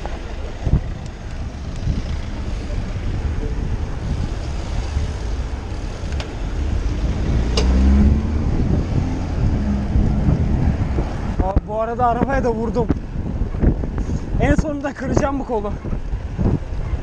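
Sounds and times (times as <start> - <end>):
rumble of passing traffic: 0.0 - 17.0
wind buffeting microphone: 0.0 - 17.0.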